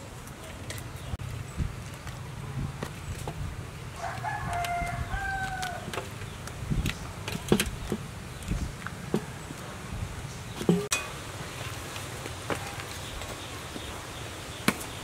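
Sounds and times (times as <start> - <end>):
rooster crowing: 4.0 - 5.9.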